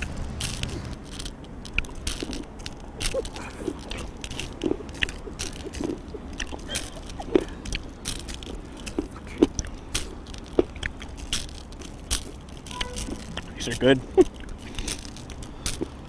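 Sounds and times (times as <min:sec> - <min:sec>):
candy crunching being chewed: 0:00.0 - 0:16.0.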